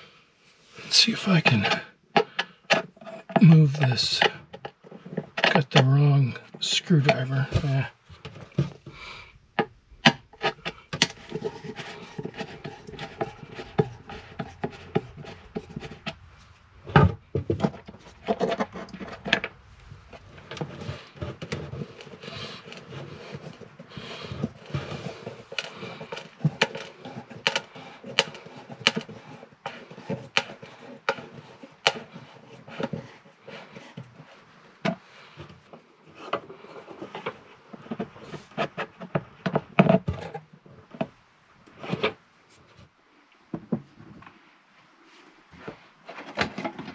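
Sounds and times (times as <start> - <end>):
screwdriver scraping and clicking: 10.3 - 16.2, 17.5 - 35.0.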